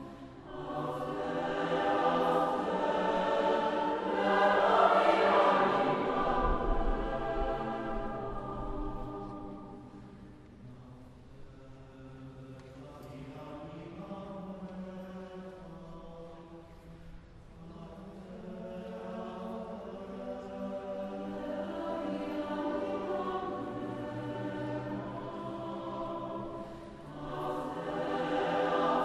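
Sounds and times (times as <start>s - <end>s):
choir singing a cappella: 0.0s - 29.0s.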